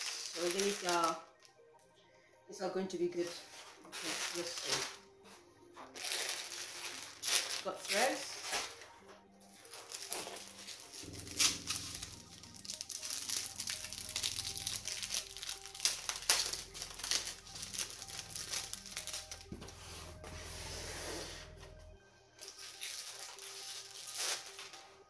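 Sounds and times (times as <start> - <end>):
packaging crinkling: 0.0 - 1.5, 3.9 - 5.0, 5.9 - 8.9, 9.5 - 19.6, 22.4 - 24.9
background music with bass: 10.8 - 22.4.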